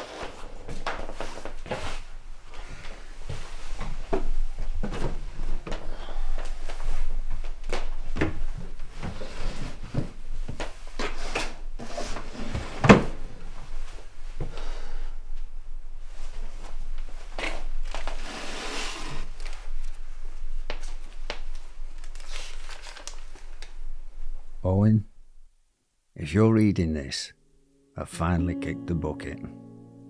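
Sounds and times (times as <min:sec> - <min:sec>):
rustling: 0:00.0 - 0:14.4, 0:16.0 - 0:24.6.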